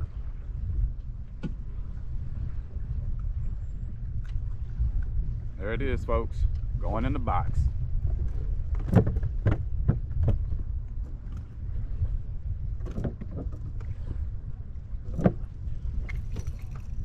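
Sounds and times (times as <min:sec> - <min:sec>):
low wind rumble on microphone: 0:00.0 - 0:17.0
knocks and thumps of gear in kayak: 0:01.3 - 0:01.8, 0:08.0 - 0:11.9, 0:12.6 - 0:14.2, 0:14.9 - 0:17.0.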